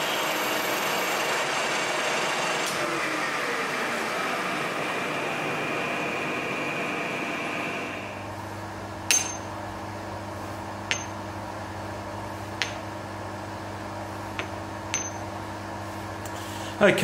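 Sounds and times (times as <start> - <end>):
metal lathe running: 0.0 - 8.3
metal nuts clinking on steel bar: 9.1 - 9.5, 10.9 - 11.2, 14.9 - 15.2.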